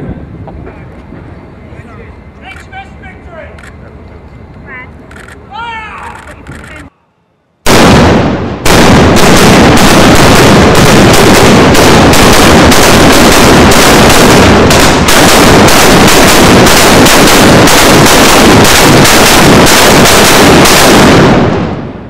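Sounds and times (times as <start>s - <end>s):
cannon fire barrage: 7.6s - 22.0s.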